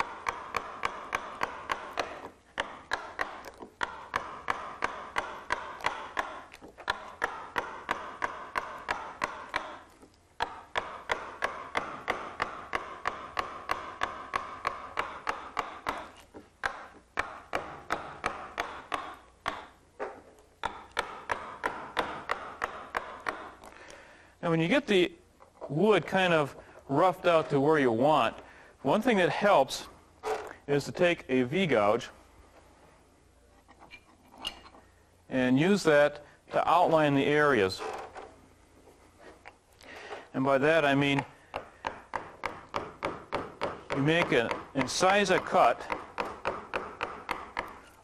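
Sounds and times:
mallet tapping carving gouge: 0.0s - 24.0s, 40.3s - 48.0s.

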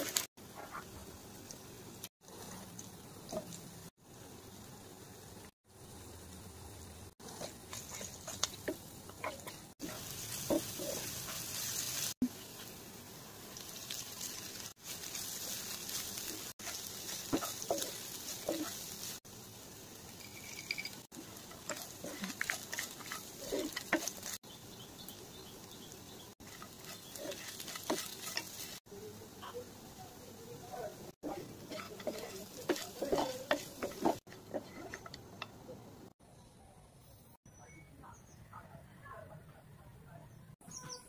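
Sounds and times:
food sizzling in a pan: 0.0s - 36.2s
spoon scraping and tapping pan: 20.1s - 24.4s, 26.4s - 28.8s, 31.6s - 35.6s.

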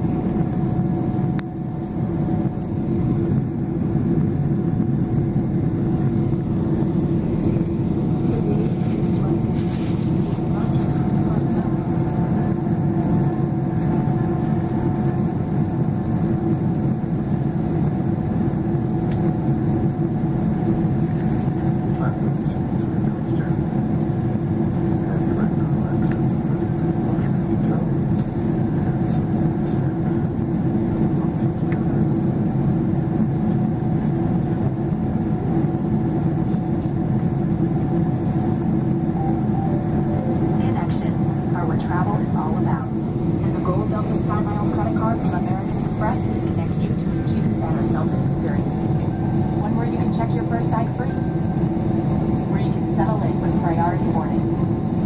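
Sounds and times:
airplane cabin low rumble: 0.0s - 55.0s
steady low hum: 0.0s - 55.0s
faint steady hum: 37.3s - 55.0s.

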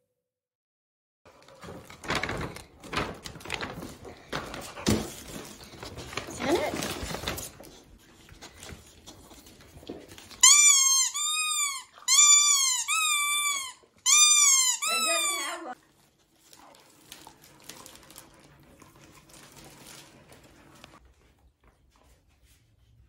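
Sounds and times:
squeaky dog toy squeaking: 10.4s - 15.8s.

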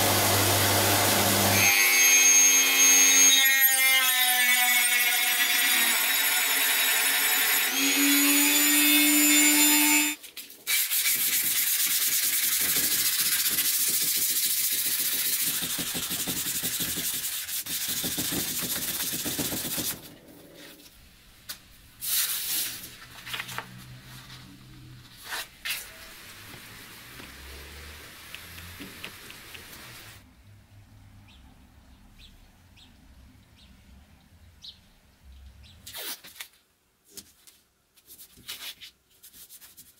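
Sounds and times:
hand sanding metal blade: 10.0s - 20.1s
sandpaper rustling: 10.2s - 20.1s, 22.0s - 26.8s, 38.0s - 39.9s.

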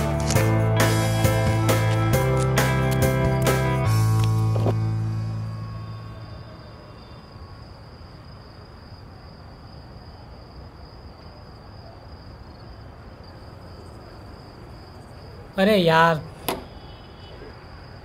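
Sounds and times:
background music: 0.0s - 6.6s
crickets chirring: 0.0s - 18.0s.

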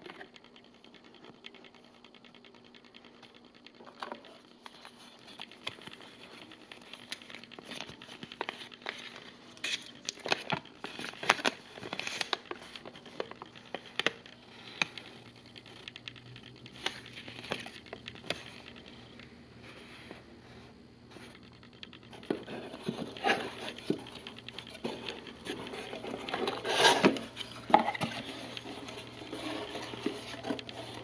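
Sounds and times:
paper rustling and crinkling: 4.0s - 15.0s, 22.1s - 31.0s.

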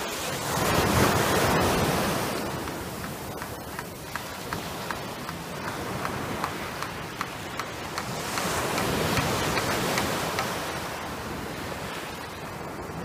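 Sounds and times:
small waves washing on beach: 0.0s - 13.0s
faint regular ticking: 2.5s - 10.6s.

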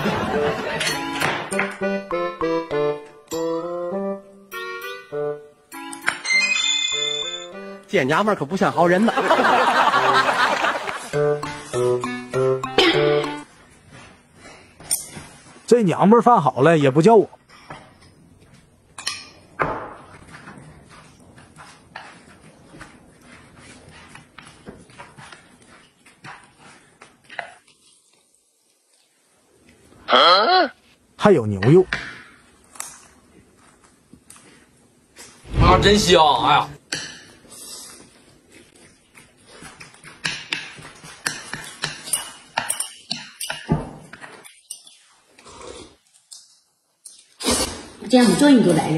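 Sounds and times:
wet chewing and smacking: 20.2s - 29.1s, 37.9s - 42.1s.

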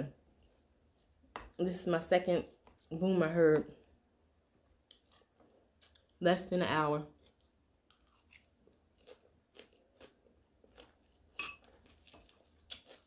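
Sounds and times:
person chewing lettuce: 7.1s - 13.0s.

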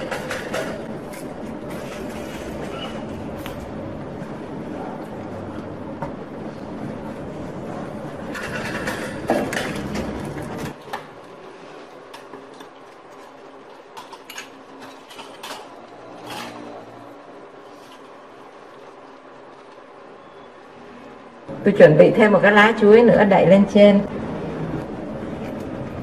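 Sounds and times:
chopsticks scraping in a pan: 17.6s - 18.9s.

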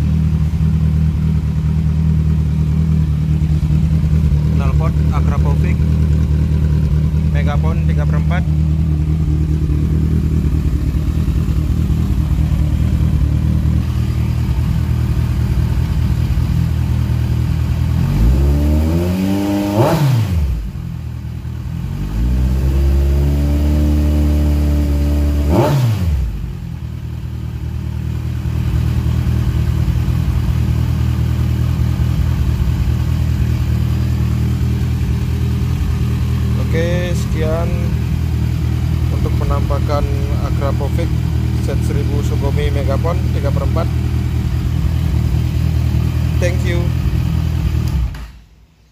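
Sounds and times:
motorcycle engine idling and revving: 0.0s - 48.9s.

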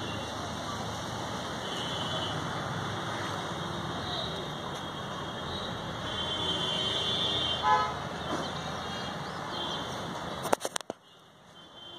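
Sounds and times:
road traffic noise: 0.0s - 11.9s
vehicle horn toot: 6.1s - 8.0s.

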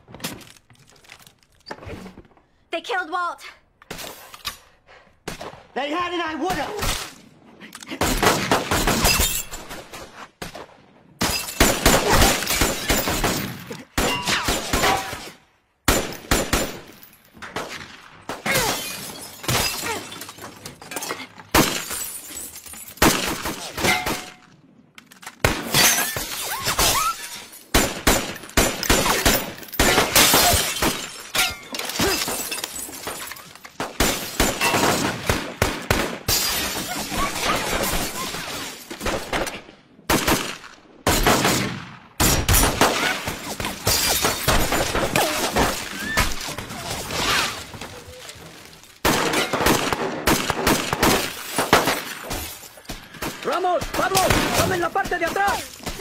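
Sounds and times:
rifle and gun shots: 8.0s - 18.6s, 27.7s - 31.2s, 33.8s - 36.3s, 38.9s - 45.8s, 49.0s - 56.0s
glass shattering: 18.5s - 23.0s, 25.7s - 27.7s, 29.1s - 33.7s.

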